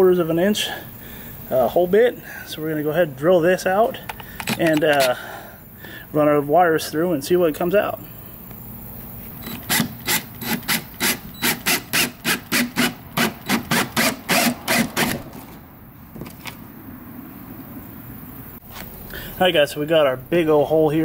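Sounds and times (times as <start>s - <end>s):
drill rasping through plastic: 9.4s - 15.3s.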